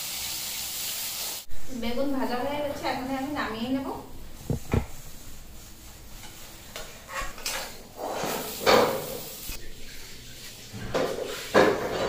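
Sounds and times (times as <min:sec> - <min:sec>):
metal spatula scraping a pan: 0:04.5 - 0:09.2, 0:09.8 - 0:12.0.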